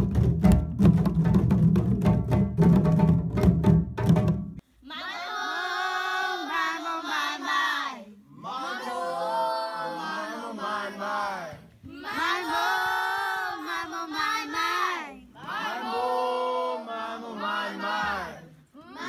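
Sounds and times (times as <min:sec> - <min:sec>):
children singing a chant: 0:04.9 - 0:19.0.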